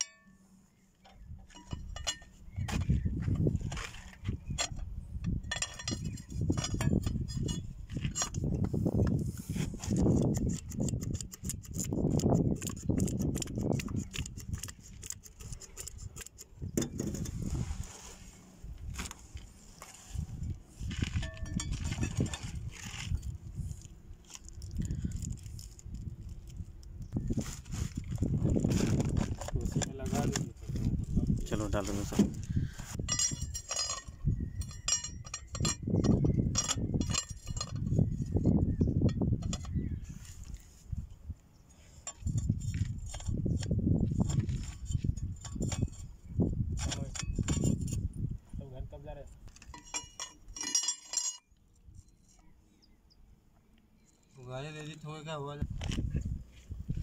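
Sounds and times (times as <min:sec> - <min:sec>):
steel discs clinking: 0:00.0 - 0:02.9, 0:03.7 - 0:08.7, 0:20.9 - 0:26.4, 0:33.0 - 0:39.8, 0:49.4 - 0:52.5.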